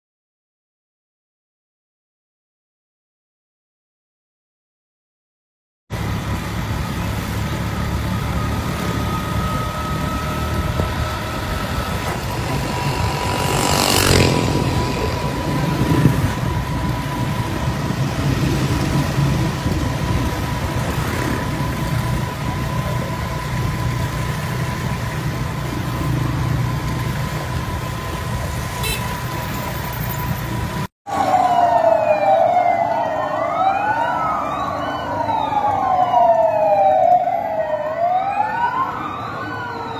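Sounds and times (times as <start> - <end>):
vehicle engines running: 5.9 - 39.9
vehicle siren wailing: 6.0 - 39.9
steady high tone: 8.2 - 20.8
loud passing whoosh: 8.7 - 22.3.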